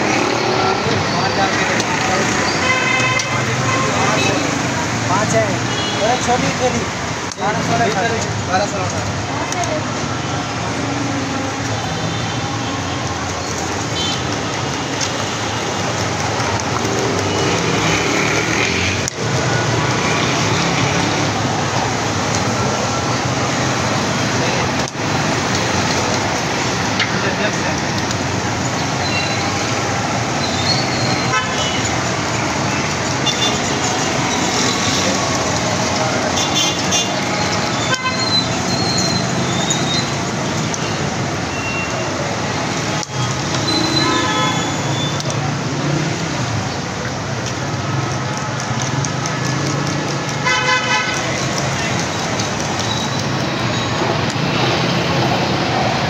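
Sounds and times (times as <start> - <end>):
street traffic noise: 0.0 - 56.0.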